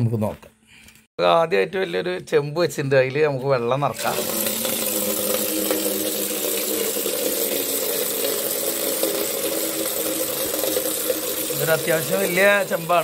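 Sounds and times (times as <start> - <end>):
water pouring into metal pot: 3.9 - 13.0.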